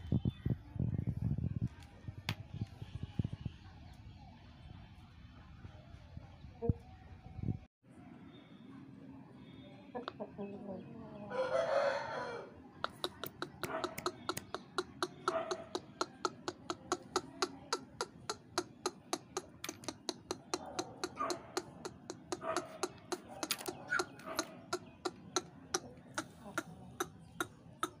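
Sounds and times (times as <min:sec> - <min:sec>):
rapid sharp clicking: 0:12.9 - 0:27.1.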